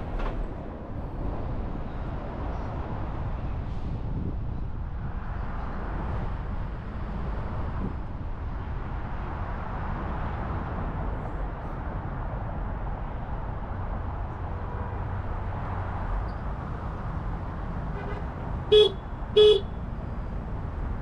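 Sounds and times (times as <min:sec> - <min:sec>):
city traffic noise: 0:00.0 - 0:21.0
car horn toots: 0:17.9 - 0:19.7.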